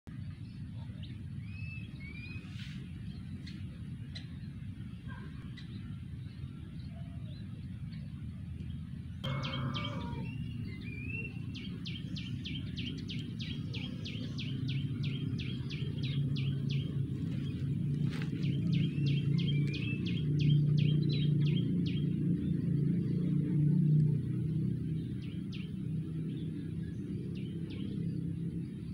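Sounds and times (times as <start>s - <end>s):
steady low rumble: 0.1s - 28.9s
cuckoos calling: 9.2s - 23.1s.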